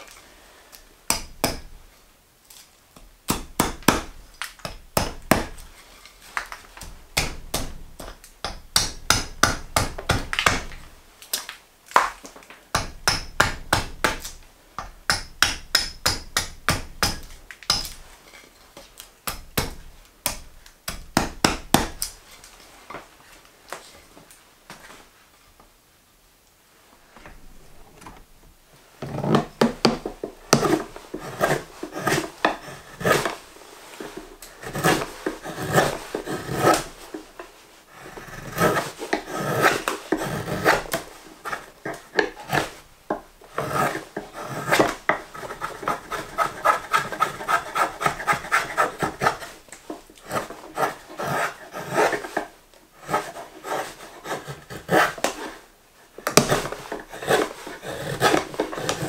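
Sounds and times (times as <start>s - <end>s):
drawknife shaving wood: 30.5s - 37.1s, 37.9s - 42.8s, 43.5s - 55.6s, 56.3s - 59.0s.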